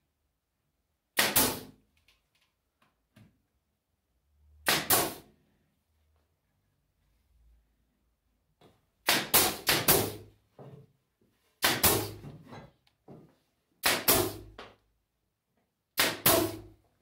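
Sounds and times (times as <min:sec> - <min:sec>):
nail gun firing into wood: 0:01.2 - 0:01.8, 0:04.6 - 0:05.3, 0:09.0 - 0:10.3, 0:11.6 - 0:12.2, 0:13.8 - 0:14.6, 0:16.0 - 0:16.8.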